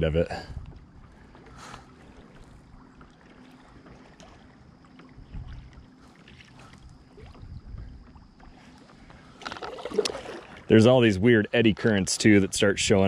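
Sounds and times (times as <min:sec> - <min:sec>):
water lapping against kayak hull: 0:00.0 - 0:13.0
small splashes: 0:01.1 - 0:10.9.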